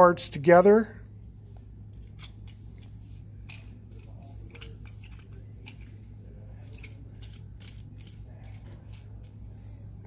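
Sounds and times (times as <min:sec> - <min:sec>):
metal parts screwed together: 0:01.9 - 0:09.4.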